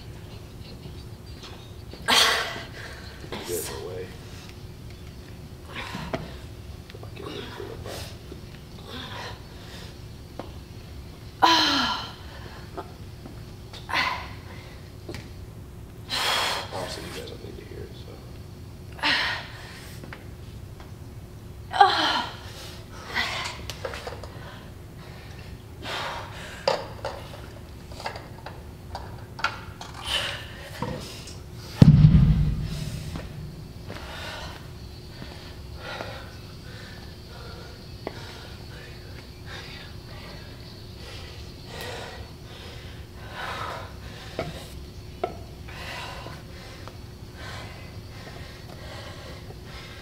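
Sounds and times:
heavy breathing: 45.7s - 50.0s.

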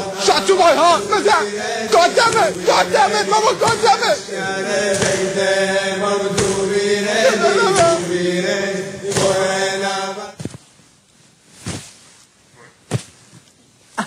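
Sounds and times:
voices chanting: 0.0s - 10.4s
soft thump: 4.8s - 5.4s, 6.3s - 6.7s
voice gliding up: 7.1s - 8.1s.

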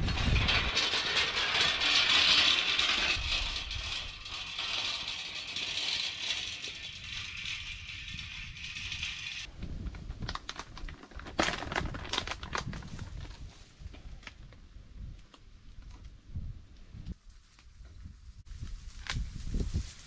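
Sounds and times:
hand-cart rattling over ground: 0.0s - 13.3s.

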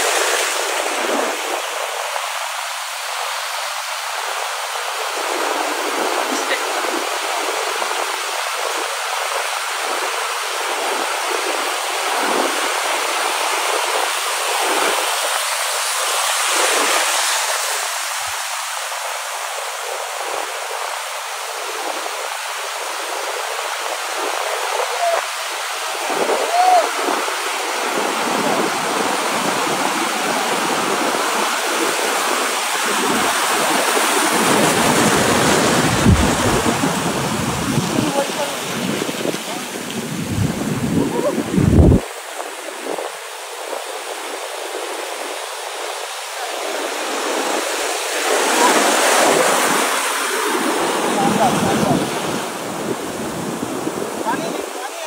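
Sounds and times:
waves breaking: 0.0s - 55.0s.

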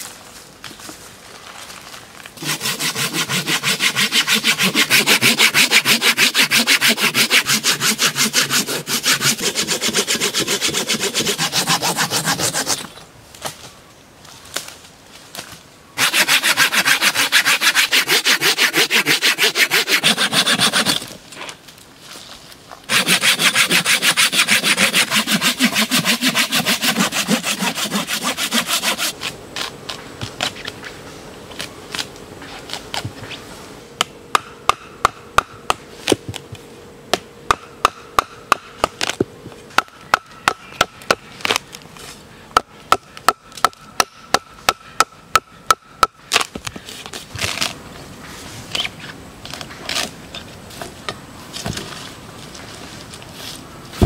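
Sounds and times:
saw cutting log: 2.4s - 13.0s, 16.0s - 21.1s, 22.9s - 29.7s
scraping and chopping: 2.4s - 13.0s.

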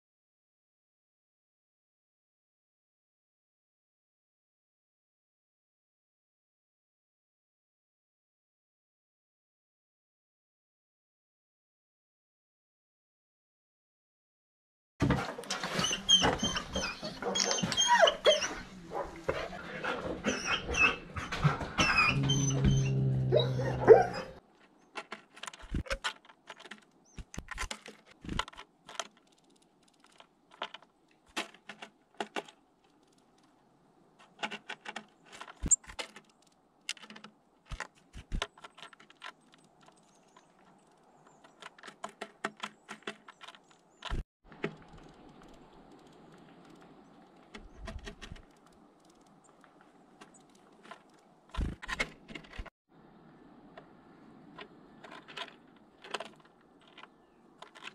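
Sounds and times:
dog vocalising excitedly: 15.8s - 24.4s
bird pecking seeds on wood: 24.4s - 52.7s, 53.8s - 57.9s.

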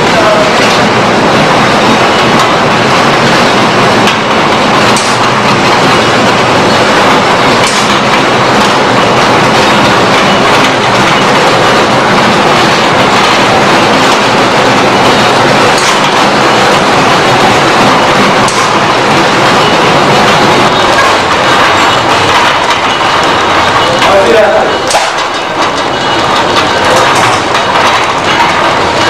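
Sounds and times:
packing machine clatter: 0.0s - 29.0s
sharp machine click: 24.8s - 25.4s.

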